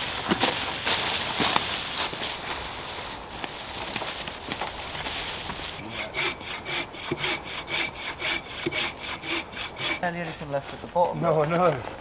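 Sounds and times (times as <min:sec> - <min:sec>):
hand saw cutting log: 0:05.8 - 0:11.8.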